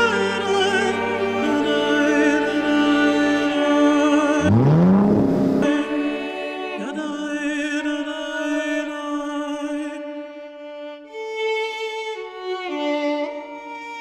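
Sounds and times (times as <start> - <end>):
slow music with held notes: 0.0 - 14.0.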